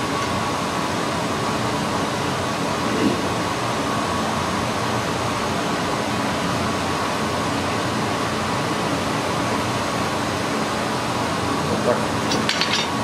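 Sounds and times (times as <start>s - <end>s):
fan-like rushing noise: 0.0s - 13.0s.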